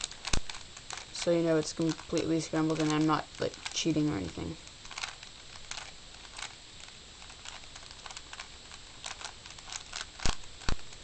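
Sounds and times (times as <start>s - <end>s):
plastic puzzle cube clicking: 0.0s - 11.0s.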